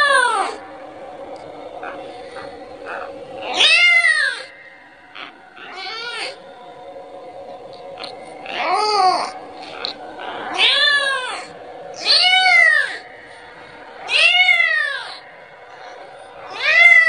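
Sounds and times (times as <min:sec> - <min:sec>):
kitten meowing: 0:14.1 - 0:15.2.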